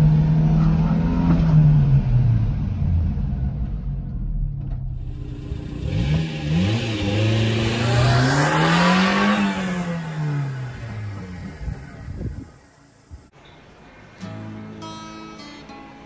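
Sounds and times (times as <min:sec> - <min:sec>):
truck engine revving: 0:04.8 - 0:12.8.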